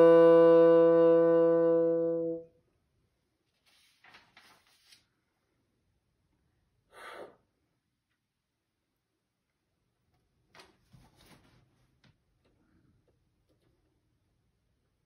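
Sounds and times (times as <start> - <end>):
bassoon holding a low note: 0.0 - 2.5
sheet music rustling: 3.4 - 5.2
short breath: 6.9 - 7.5.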